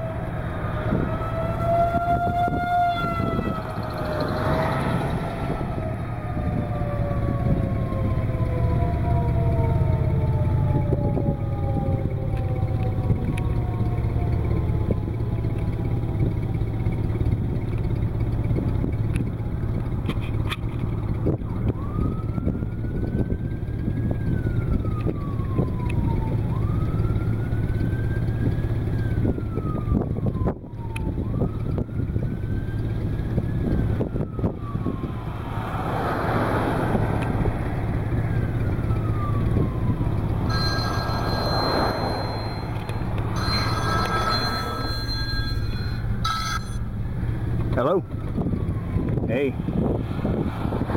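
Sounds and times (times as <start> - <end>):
wind rumble on microphone: 0.0 - 13.6, 28.3 - 35.5, 48.1 - 50.9
siren wailing: 0.0 - 19.8, 21.0 - 49.3.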